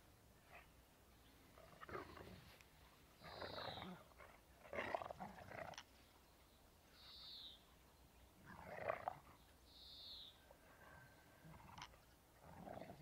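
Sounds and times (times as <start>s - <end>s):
dogs growling while playing: 3.2s - 5.8s, 8.4s - 9.3s, 10.7s - 13.0s.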